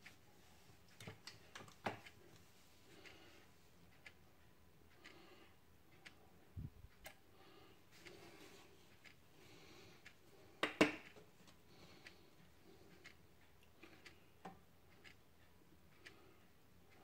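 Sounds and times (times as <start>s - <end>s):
small ticks: 4.9s - 6.2s, 11.8s - 17.0s.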